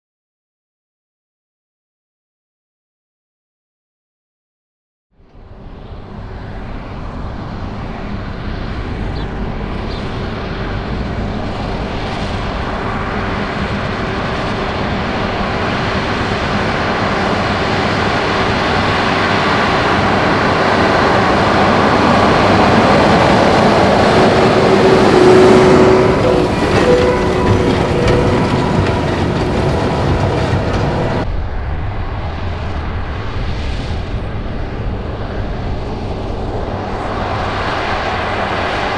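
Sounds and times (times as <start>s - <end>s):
tractor engine and baler running: 5.6s - 31.3s.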